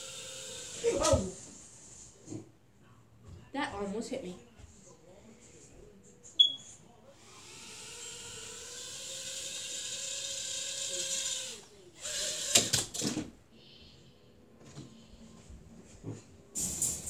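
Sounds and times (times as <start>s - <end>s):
small electric motor whirring: 0.0s - 1.0s, 7.2s - 12.7s.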